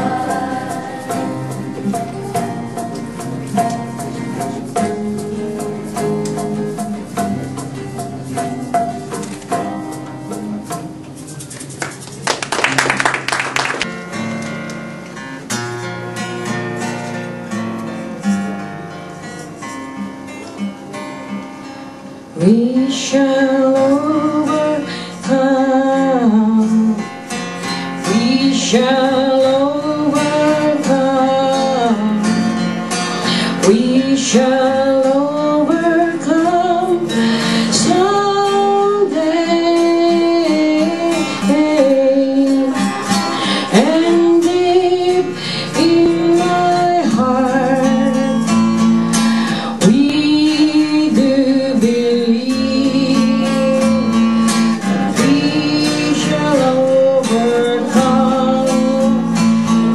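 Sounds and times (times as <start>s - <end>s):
woman singing: 0.0s - 2.8s, 22.4s - 27.2s, 28.0s - 32.7s, 33.5s - 48.8s, 49.5s - 59.9s
strummed acoustic guitar: 0.0s - 59.9s.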